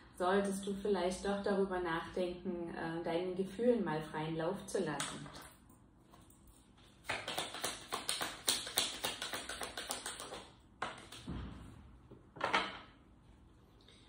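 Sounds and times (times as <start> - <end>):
cards being shuffled: 7.0 - 11.3.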